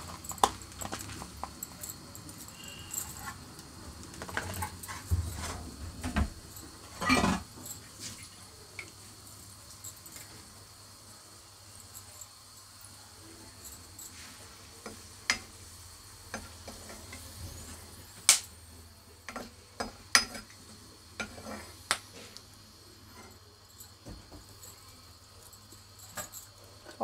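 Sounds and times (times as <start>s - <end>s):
spices sizzling in oil: 0.0s - 27.0s
metal ladle tapping and scraping pan: 19.3s - 20.6s, 21.2s - 22.0s.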